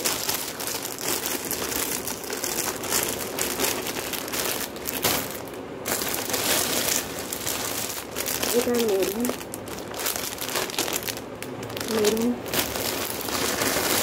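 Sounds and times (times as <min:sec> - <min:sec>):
plastic bag crinkling: 0:00.0 - 0:14.0.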